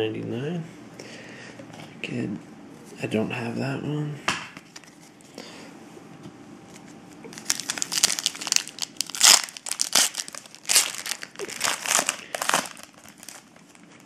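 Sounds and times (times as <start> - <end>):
foil wrapper crinkling and tearing: 7.3 - 14.0.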